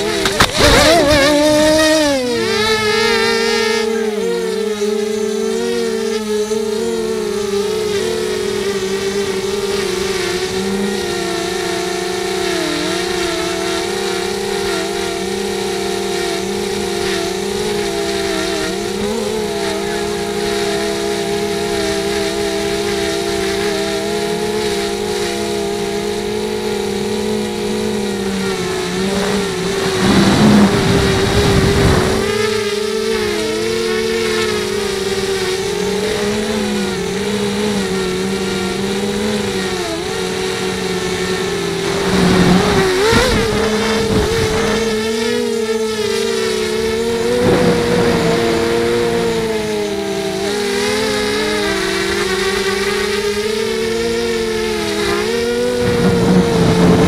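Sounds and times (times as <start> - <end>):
quadcopter motors whining: 0.0 - 57.0
rough rushing noise: 28.5 - 32.7, 47.2 - 49.5, 55.7 - 57.0.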